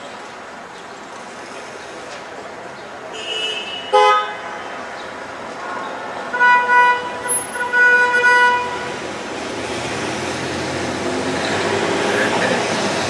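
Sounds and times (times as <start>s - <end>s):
traffic and machinery noise: 0.0s - 13.0s
vehicle horn honking: 3.1s - 4.6s, 6.3s - 9.0s.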